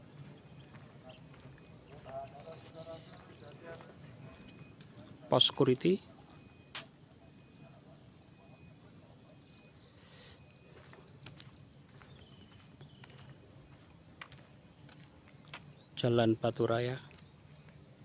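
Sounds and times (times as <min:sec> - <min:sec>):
crickets and insects trilling: 0:00.0 - 0:18.0.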